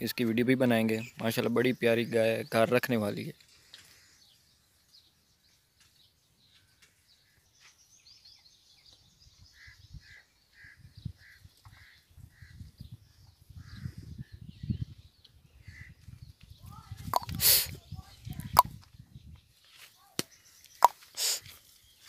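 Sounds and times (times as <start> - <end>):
faint high bird chirping: 0.1 - 22.0
bird short calls: 17.1 - 17.8.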